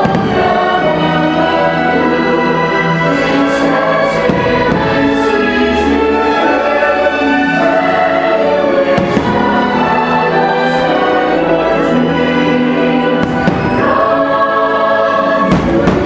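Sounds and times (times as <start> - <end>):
fireworks bursting: 0.0 - 1.1, 3.2 - 5.6, 8.7 - 10.1, 13.2 - 14.2, 15.4 - 16.0
choir and orchestra music: 0.0 - 16.0.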